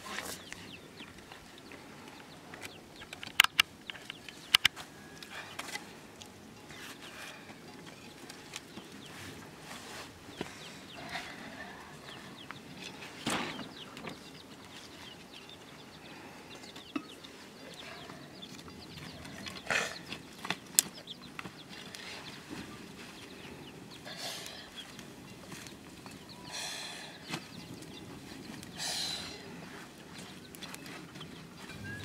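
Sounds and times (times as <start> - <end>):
chickens clucking: 0.0 - 32.0
sticks knocking and snapping: 3.1 - 4.8.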